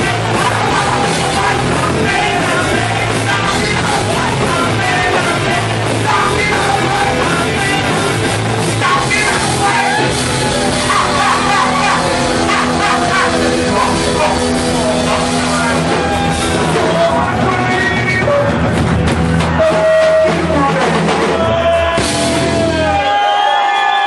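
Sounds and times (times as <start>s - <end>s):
punk rock band playing: 0.0s - 23.7s
person shouting vocals: 10.8s - 14.4s.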